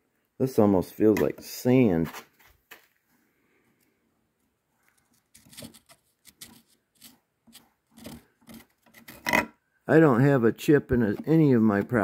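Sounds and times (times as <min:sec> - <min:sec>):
steel pick scraping deposits: 0:05.2 - 0:09.5.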